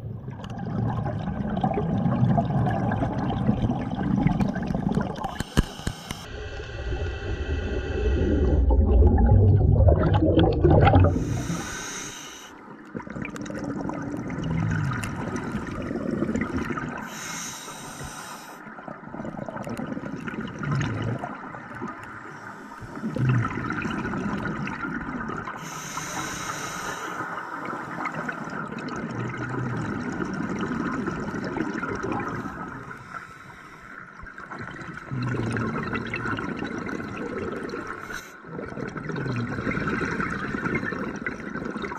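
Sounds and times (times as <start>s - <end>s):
exhaled bubbles rushing: 0.0s - 11.7s, 12.9s - 17.1s, 18.8s - 22.1s, 23.0s - 25.6s, 27.6s - 33.0s, 34.2s - 41.9s
regulator hissing inhalations: 5.3s - 8.6s, 11.1s - 12.6s, 17.0s - 18.7s, 25.6s - 28.0s.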